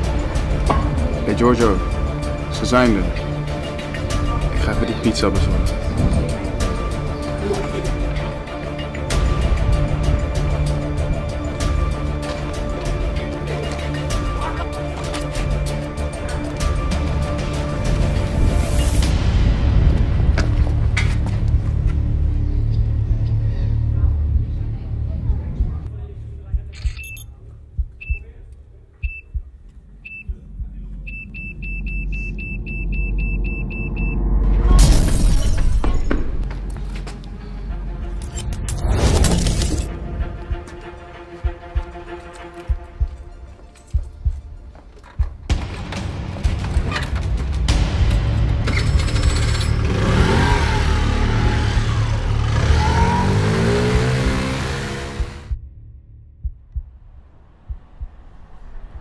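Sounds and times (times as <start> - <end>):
countdown beeps: 26.9 - 28.3, 29.0 - 30.4, 31.0 - 34.2
low rumble: 45.3 - 59.0
scooter engine revving: 49.0 - 55.6.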